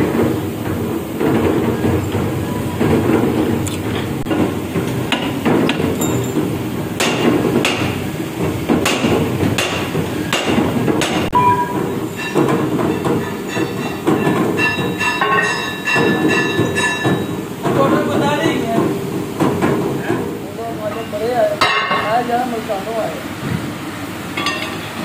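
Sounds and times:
sharp metallic knocks: 0:04.2 - 0:08.0, 0:08.7 - 0:19.8.

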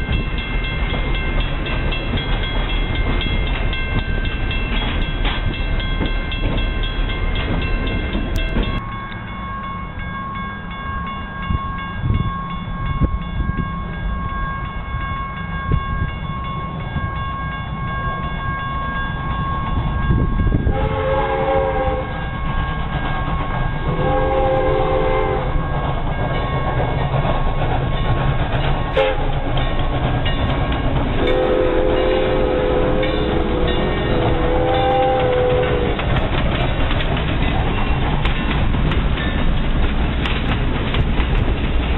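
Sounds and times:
diesel locomotive passing: 0:00.0 - 0:41.9
steam whistle blasts: 0:20.7 - 0:22.2, 0:23.8 - 0:25.6, 0:28.9 - 0:29.3, 0:31.2 - 0:36.0.

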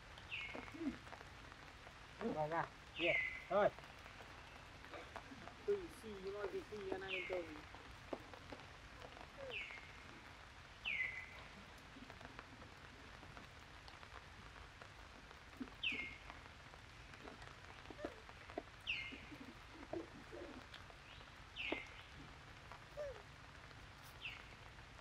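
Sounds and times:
soft steady hiss: 0:00.0 - 0:25.0.

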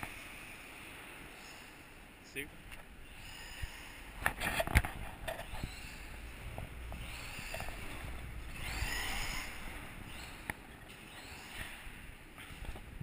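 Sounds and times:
electric motor whining: 0:06.9 - 0:10.3.

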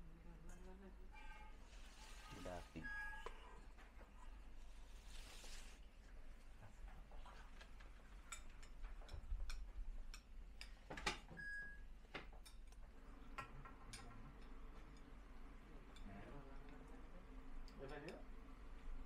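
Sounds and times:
spoons clinking on metal bowls: 0:08.2 - 0:11.2, 0:13.8 - 0:16.2.

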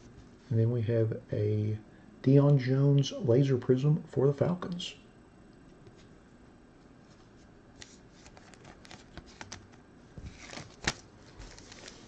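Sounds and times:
trading cards tapping and rustling: 0:07.8 - 0:12.0.

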